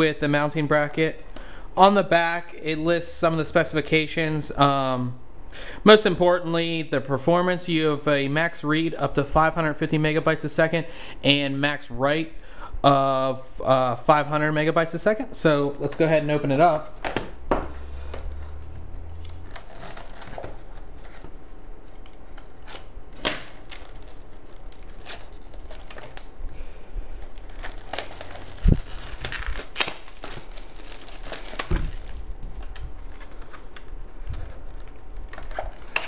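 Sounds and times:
plastic shrink wrap crinkling: 18.0s - 36.0s.

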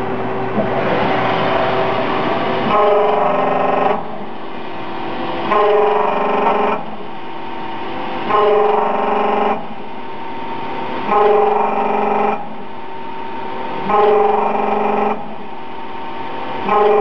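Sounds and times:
lathe running: 0.0s - 17.0s
buzzing tone of cutting: 1.8s - 4.3s, 5.4s - 7.0s, 8.2s - 9.9s, 13.8s - 15.4s, 16.6s - 17.0s.

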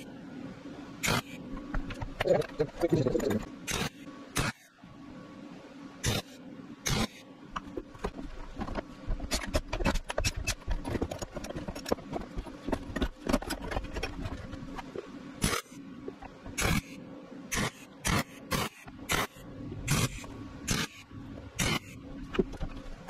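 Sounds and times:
welding arc crackling: 1.0s - 4.7s, 6.0s - 7.2s, 13.8s - 15.8s, 16.4s - 22.0s.

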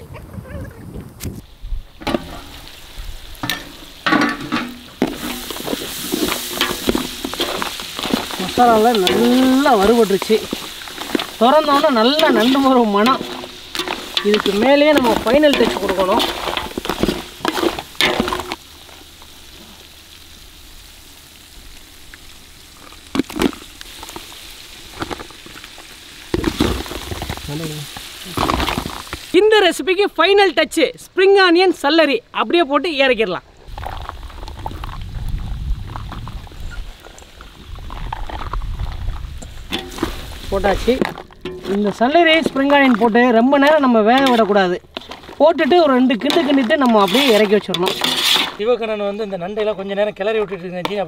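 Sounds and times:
food sizzling in pot: 1.3s - 31.8s, 33.6s - 50.9s
metal pot lid clanking: 3.4s - 5.7s, 6.3s - 18.6s, 39.7s - 40.2s, 41.1s - 43.0s, 46.2s - 48.6s
spatula stirring in pot: 3.4s - 18.7s, 39.7s - 48.6s.

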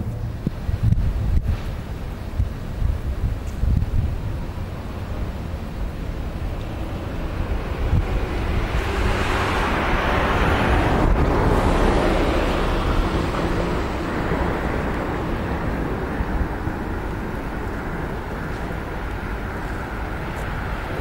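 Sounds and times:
wind rumble on microphone: 0.0s - 21.0s
vehicle passing by: 5.9s - 21.0s.

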